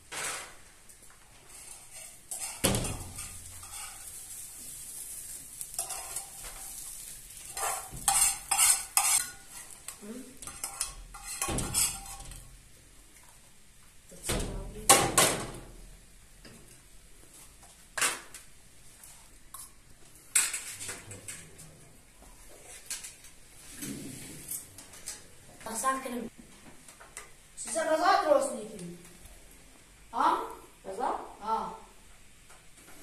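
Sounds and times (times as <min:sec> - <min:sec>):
objects clattering and knocking: 0:10.4 - 0:12.5.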